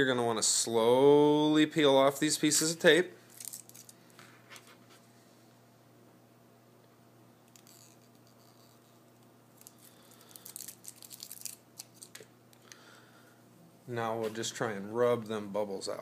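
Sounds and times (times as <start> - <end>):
tape crinkling: 3.3 - 4.8, 7.5 - 12.8.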